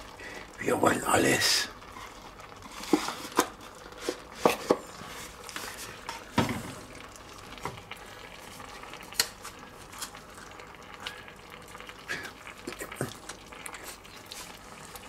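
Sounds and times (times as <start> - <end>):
vegetables sizzling: 0.0 - 15.0
wooden spatula scraping pot: 1.9 - 6.3.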